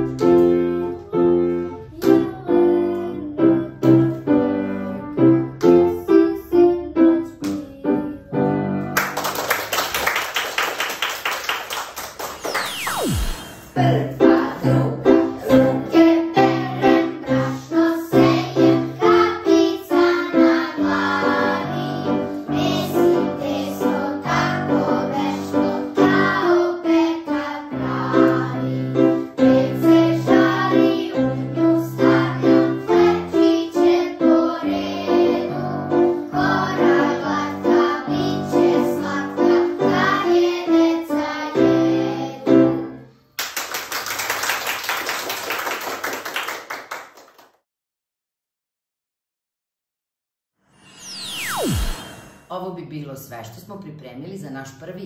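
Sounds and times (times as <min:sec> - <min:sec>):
grand piano: 0:00.0 - 0:09.4, 0:12.4 - 0:43.1
children's choir singing: 0:13.1 - 0:42.9.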